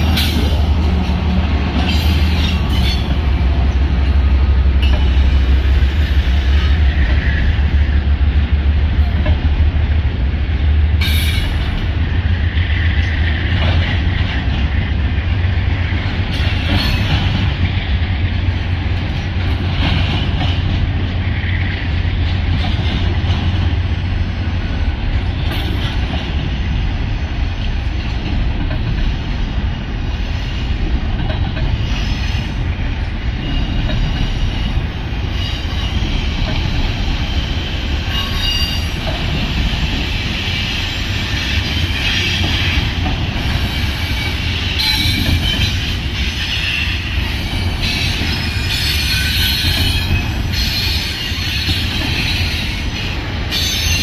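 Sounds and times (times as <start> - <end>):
train wheels clacking: 0.0 - 10.0, 10.6 - 54.0
heavy train rumble: 0.0 - 54.0
train wheels squealing: 1.8 - 3.1, 33.4 - 42.9, 43.5 - 54.0.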